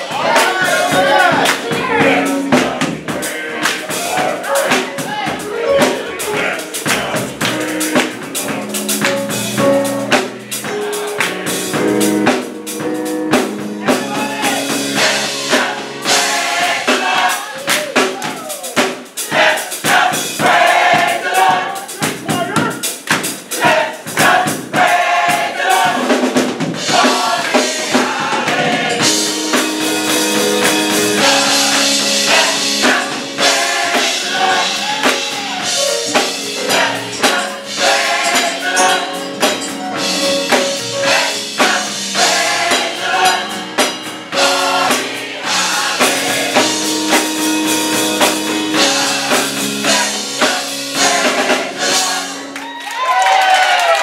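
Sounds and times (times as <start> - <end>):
held chords: 0.0 - 17.4, 26.8 - 52.6
steady drum beat: 0.0 - 52.5
gospel choir singing: 0.0 - 52.7
hands clapping: 1.4 - 1.7, 3.6 - 4.9, 6.9 - 8.2, 9.0 - 9.3, 11.2 - 11.4, 17.6 - 18.4, 22.6 - 23.4, 52.5 - 54.0.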